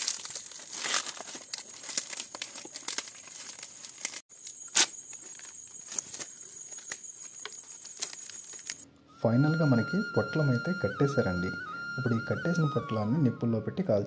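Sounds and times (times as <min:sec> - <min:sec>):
leaves rustling and crinkling: 0:00.0 - 0:08.8
leaf crackle: 0:00.0 - 0:13.1.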